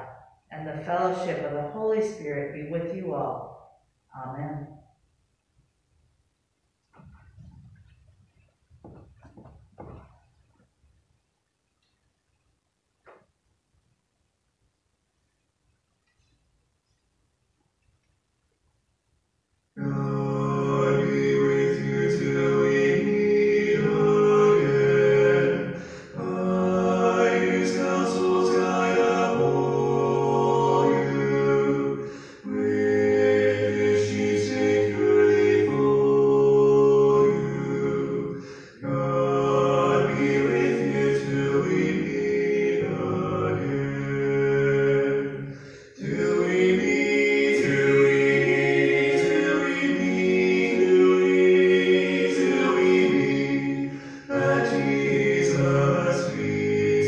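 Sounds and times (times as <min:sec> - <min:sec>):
voices singing a slow hymn: 0:19.8 - 0:57.0.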